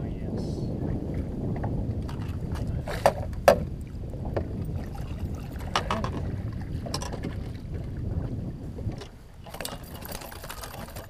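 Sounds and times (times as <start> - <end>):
wind noise: 0.0 - 11.0
water slapping boat hull: 0.7 - 11.0
fish splashing: 9.4 - 11.0.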